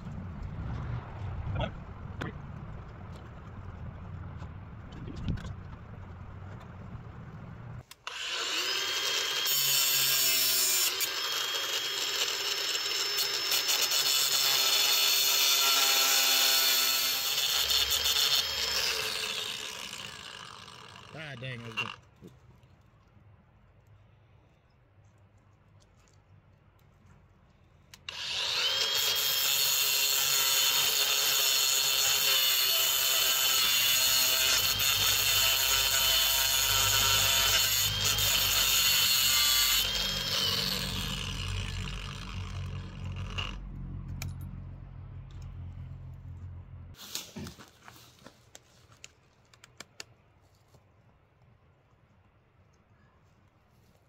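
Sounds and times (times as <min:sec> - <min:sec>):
angle grinder cutting steel: 0:07.9 - 0:22.0, 0:28.0 - 0:43.7.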